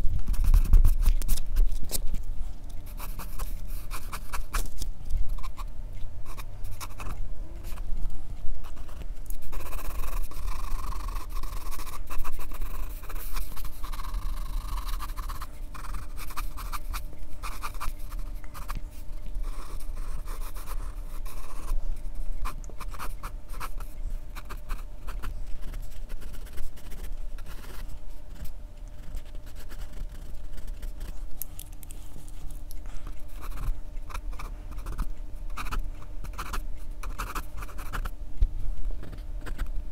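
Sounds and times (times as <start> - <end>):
steady low hum: 0.0 - 39.9
pencil scratching on paper: 2.9 - 4.6, 8.6 - 18.8, 19.4 - 21.8, 22.4 - 31.2, 33.3 - 38.1.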